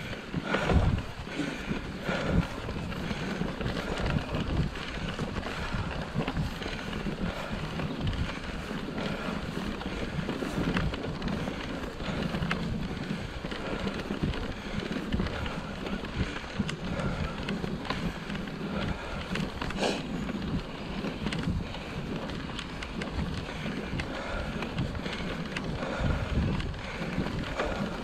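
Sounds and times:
bike tyres rumbling on ground: 0.0 - 28.0
wind buffeting microphone: 0.0 - 28.0.

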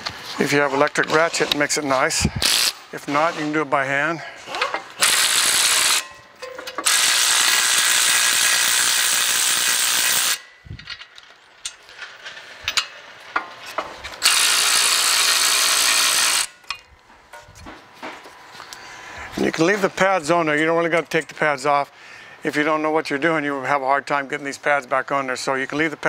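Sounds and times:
electric ratchet spinning bolts: 2.4 - 2.8, 5.0 - 13.2, 14.2 - 16.8.

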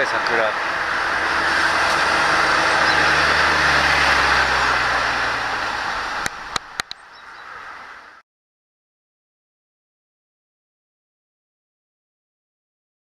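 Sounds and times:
vehicle passing: 0.0 - 8.2
sharp clicks: 6.2 - 7.0.

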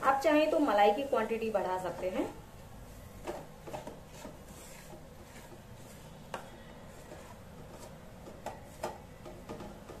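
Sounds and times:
wooden spatula scraping a pan: 3.2 - 10.0.

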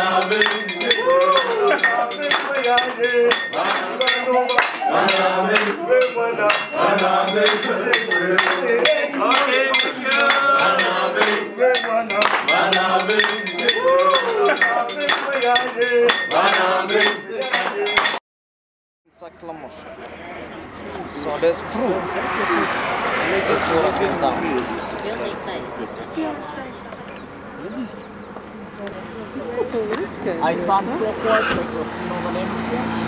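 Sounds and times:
cutlery clanking on plates and pans: 0.0 - 18.2
group singing and chanting: 0.0 - 18.2.

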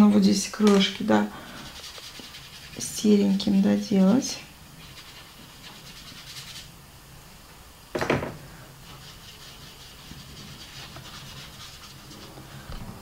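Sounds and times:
brush scratching on paper: 1.4 - 3.6, 4.8 - 6.7, 8.8 - 12.6.

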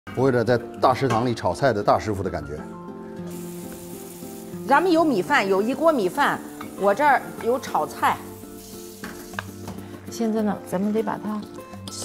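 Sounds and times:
background music: 0.1 - 12.0
woman talking: 4.7 - 8.3.

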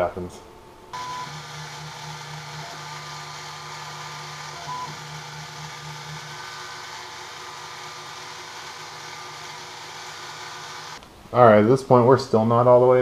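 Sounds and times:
milling machine motor hum and whine: 1.0 - 11.0.

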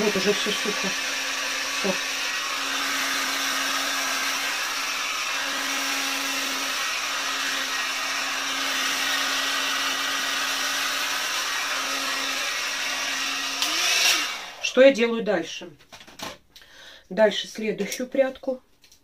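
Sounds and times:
hot air brush blowing air: 0.0 - 14.7.

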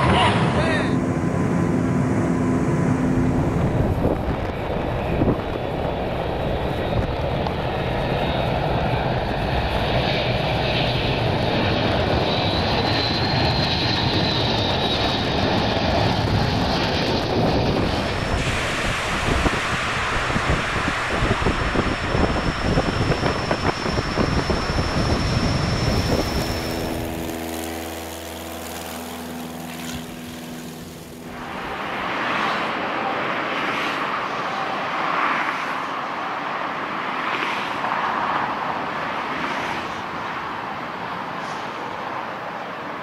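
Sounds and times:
rocket-assisted takeoff rush: 0.0 - 34.1
high turbine whine: 0.0 - 43.0
jet engines roaring: 0.0 - 43.0.

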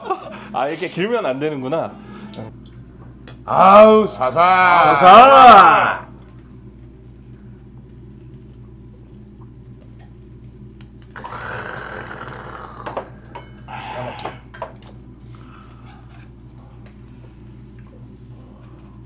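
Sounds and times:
extractor hood humming: 0.0 - 2.6.

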